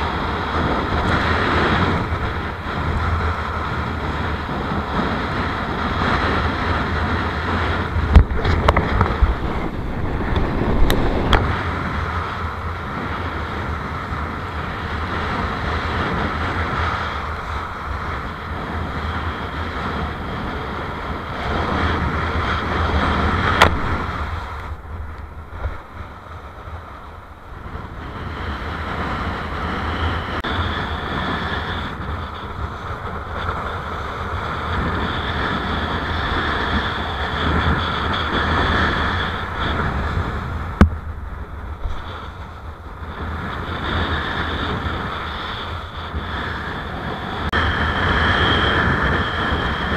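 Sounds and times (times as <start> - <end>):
wind buffeting microphone: 0.0 - 49.9
board rushing through surf: 6.0 - 13.3.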